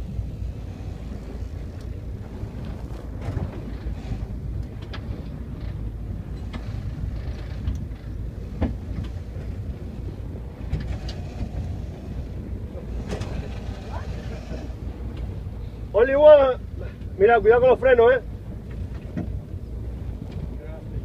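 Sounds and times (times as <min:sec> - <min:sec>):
fishing boat engine rumble: 0:00.0 - 0:21.0.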